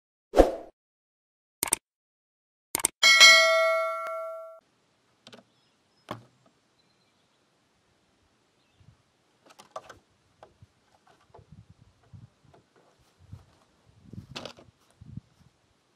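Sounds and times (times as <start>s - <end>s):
bell-like ding: 3.0s - 4.6s.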